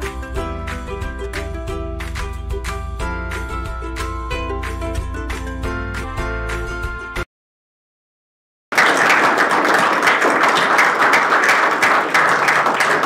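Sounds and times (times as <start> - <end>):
audience applause: 8.7 - 13.0.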